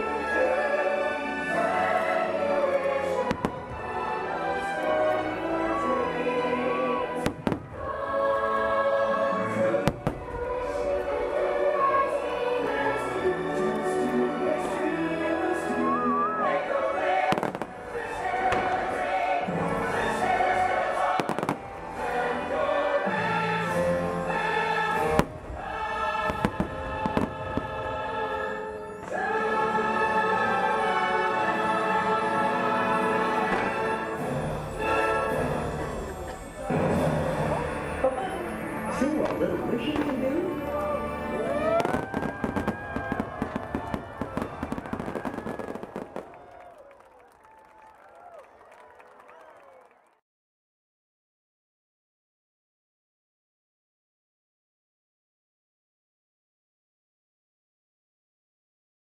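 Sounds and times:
choral show music: 0.0 - 49.8
fireworks bangs: 7.2 - 7.9, 17.2 - 19.2, 41.7 - 46.6.

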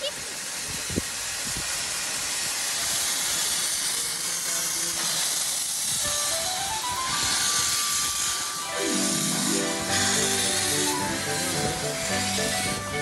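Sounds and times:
steam hissing from locomotive: 0.0 - 13.0
music with rising notes: 6.1 - 7.5, 8.5 - 13.0.

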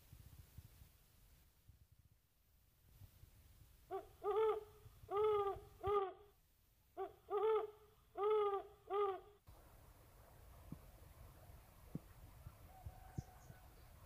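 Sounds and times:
owl hooting: 3.9 - 6.3, 7.0 - 9.4.

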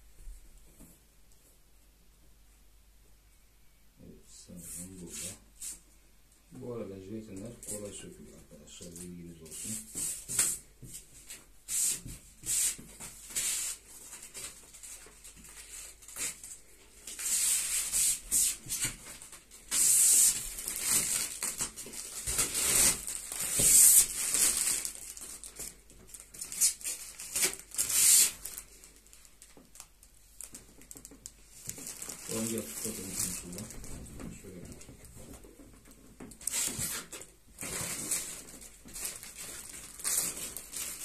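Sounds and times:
plastic wrap peeled and crumpled: 11.3 - 41.0.

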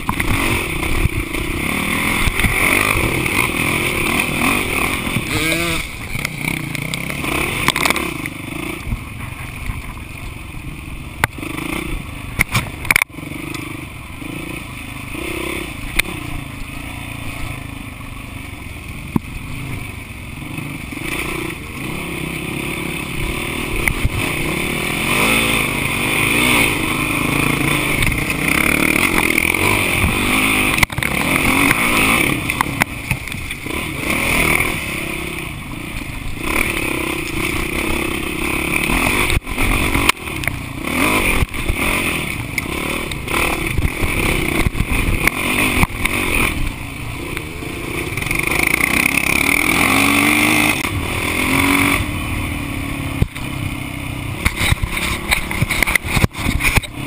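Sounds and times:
dirt bike engine revving: 0.0 - 57.0
bike knocking and rattling: 11.1 - 13.7, 54.3 - 57.0.

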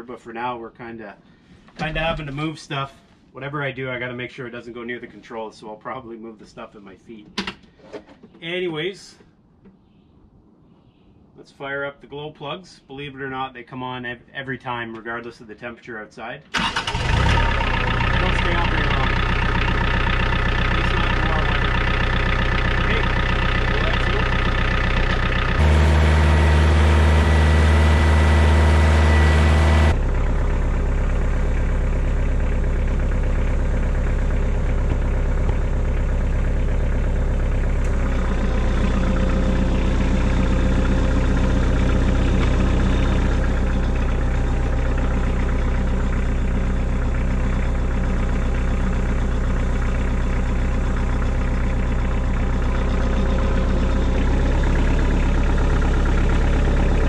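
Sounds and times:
tractor diesel engine idling: 16.5 - 57.0.

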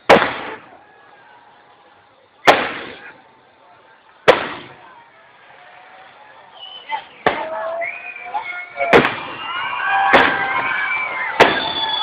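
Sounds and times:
firework shells exploding: 0.0 - 0.7, 2.4 - 3.2, 4.2 - 4.9, 8.8 - 12.0.

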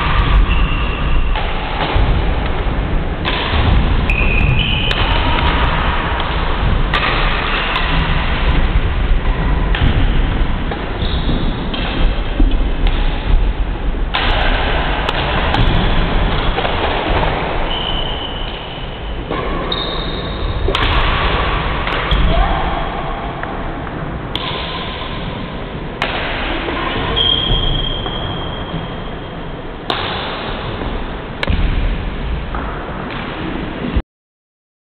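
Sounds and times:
shoe squeaks: 0.4 - 1.2, 4.1 - 5.0, 17.7 - 18.9, 19.7 - 20.4, 27.2 - 29.2
racket striking shuttlecock: 4.8 - 8.3.

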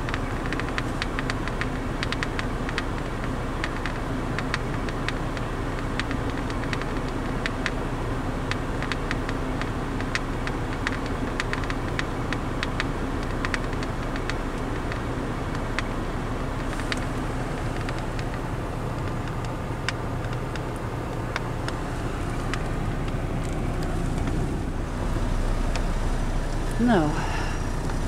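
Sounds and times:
keypad keys clicking: 0.0 - 7.8, 8.5 - 15.9
van engine idling: 0.0 - 28.0.

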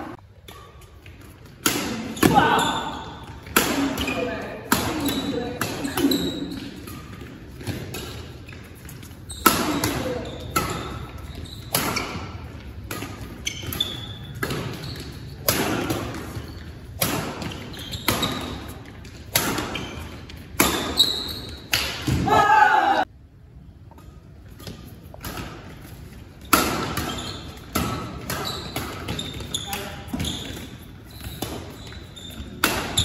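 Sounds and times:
court shoes squeaking: 0.1 - 22.2, 23.8 - 33.0
rackets smacking shuttlecock: 23.9 - 33.0.

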